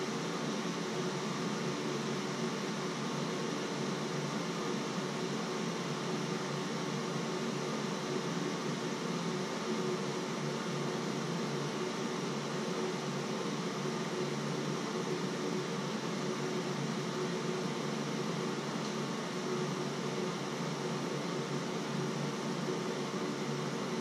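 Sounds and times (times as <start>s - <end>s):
faint constant tone: 0.0s - 24.0s
mechanical hum and hiss: 0.0s - 24.0s.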